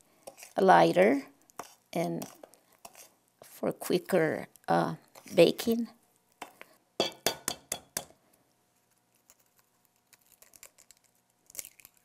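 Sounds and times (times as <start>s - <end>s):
spoon tapping glass bowl: 7.0s - 8.1s.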